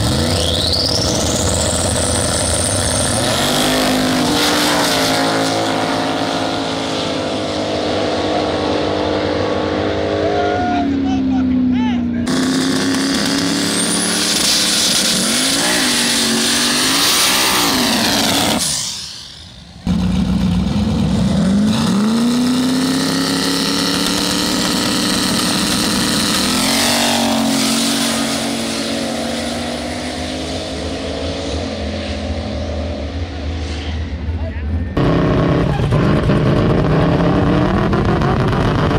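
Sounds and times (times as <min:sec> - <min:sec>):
drag car engines revving: 0:00.0 - 0:38.9.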